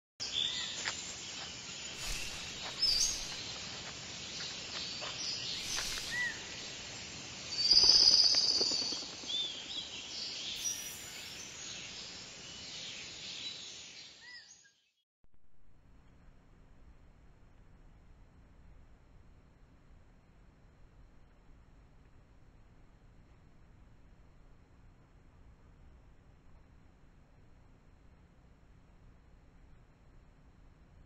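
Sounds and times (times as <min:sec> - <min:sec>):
faint hiss: 0:00.3 - 0:14.4
bird chirps: 0:01.9 - 0:03.6, 0:05.0 - 0:06.8, 0:07.5 - 0:14.8.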